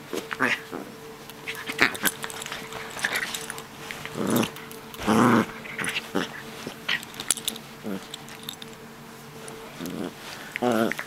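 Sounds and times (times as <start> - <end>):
small dog growling: 0.3 - 7.1, 7.8 - 8.1, 9.7 - 11.0.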